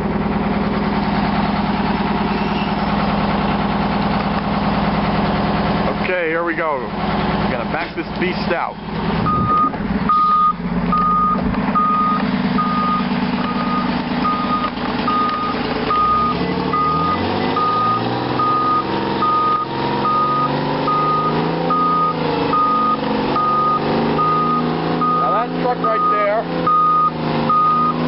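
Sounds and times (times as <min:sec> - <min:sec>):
diesel truck engine running: 0:00.0 - 0:28.0
reversing alarm beeping: 0:09.2 - 0:28.0.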